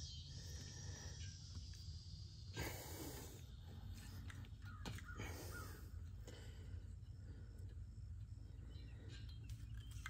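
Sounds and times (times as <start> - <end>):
faint high chirp: 8.5 - 10.0.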